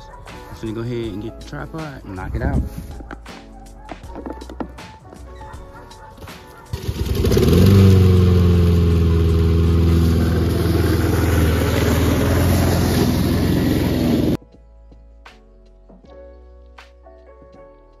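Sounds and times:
lawn mower engine running: 0:06.7 - 0:14.4.

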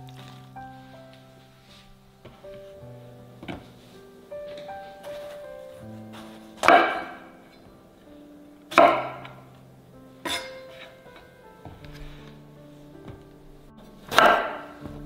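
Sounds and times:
soft background music: 0:00.0 - 0:15.0.

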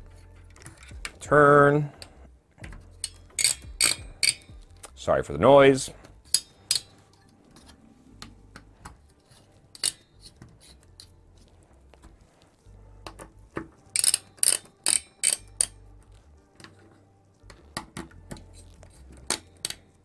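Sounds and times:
screwdriver metallic clicks: 0:02.6 - 0:05.0, 0:09.7 - 0:11.1, 0:13.0 - 0:15.8.

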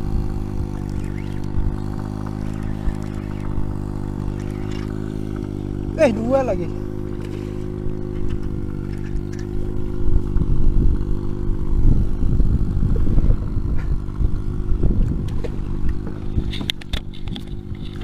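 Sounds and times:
boat engine running: 0:00.0 - 0:18.0
sharp clicks: 0:00.7 - 0:05.5.

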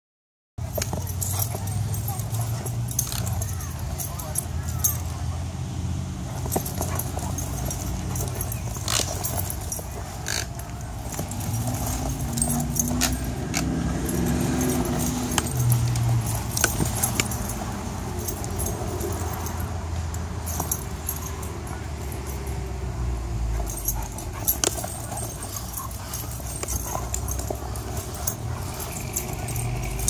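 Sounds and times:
collar and leash jingling: 0:00.6 - 0:30.0
dogs growling: 0:06.2 - 0:19.7, 0:23.4 - 0:30.0.

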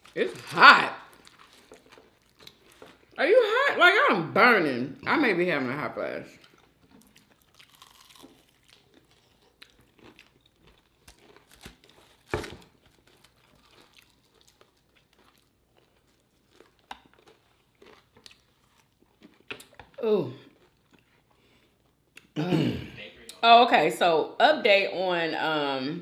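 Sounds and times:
person chewing crunchy food: 0:00.0 - 0:03.2, 0:06.3 - 0:22.4.

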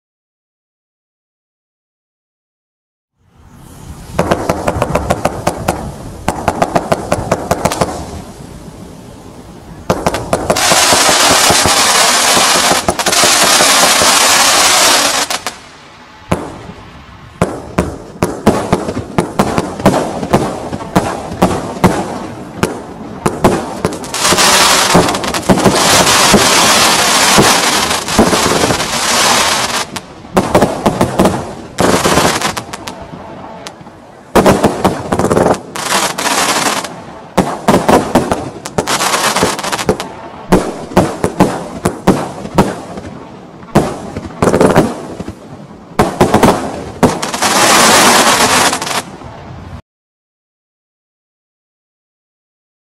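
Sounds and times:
dense crackling hiss: 0:03.2 - 0:49.8
firework pops and bangs: 0:04.1 - 0:08.1, 0:09.9 - 0:15.6, 0:17.4 - 0:33.0, 0:34.4 - 0:45.4, 0:46.0 - 0:49.1.

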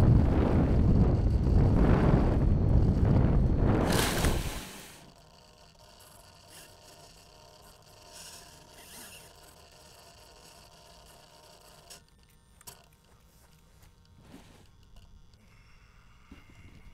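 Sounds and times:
wind and grass hiss: 0:00.0 - 0:05.2
scraping rustle: 0:02.8 - 0:05.0
small clicks: 0:05.1 - 0:15.5.

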